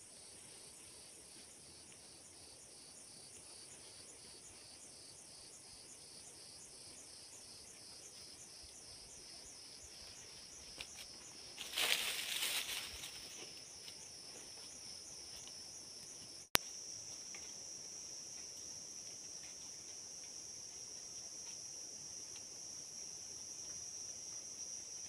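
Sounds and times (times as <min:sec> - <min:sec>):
faint light ticks: 0:22.2 - 0:22.5.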